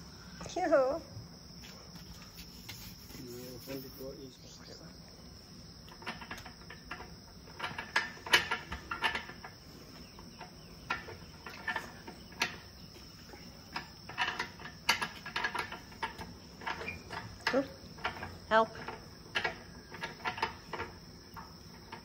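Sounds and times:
crickets chirring: 0.0s - 22.0s
metal bolt clicking and rattling: 5.9s - 9.6s, 13.7s - 22.0s.

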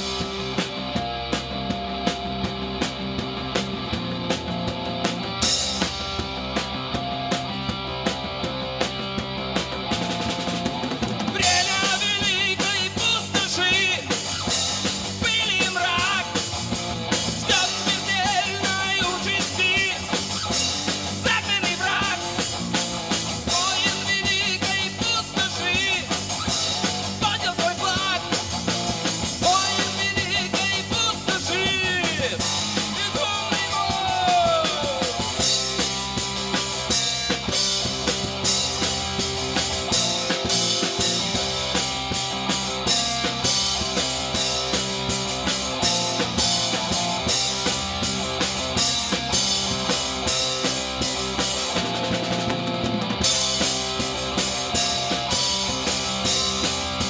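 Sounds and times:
live rock band playing: 0.0s - 57.0s
man singing: 11.3s - 14.3s, 15.1s - 16.5s, 17.4s - 20.2s, 21.0s - 22.5s, 23.5s - 26.5s, 27.1s - 28.5s, 29.4s - 35.3s.

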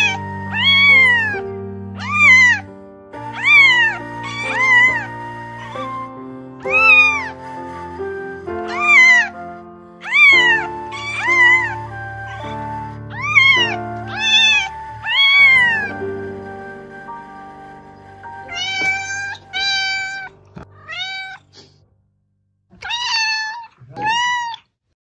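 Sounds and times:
kittens meowing: 0.0s - 1.4s, 2.0s - 2.7s, 3.3s - 5.9s, 6.6s - 7.4s, 8.6s - 9.4s, 10.0s - 16.0s, 18.5s - 21.4s, 22.8s - 24.6s
low music drone: 0.0s - 8.7s, 10.6s - 19.6s.

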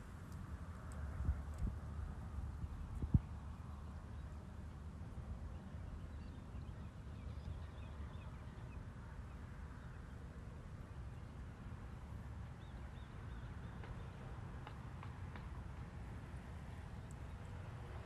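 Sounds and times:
wind rumble on microphone: 0.0s - 10.0s.

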